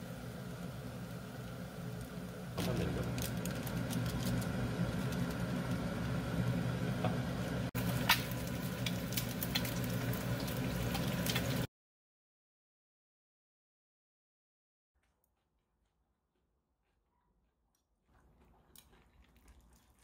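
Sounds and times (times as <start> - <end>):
egg sizzling in oil: 0.0 - 11.7
oil popping and crackling: 0.1 - 11.7, 18.3 - 20.0.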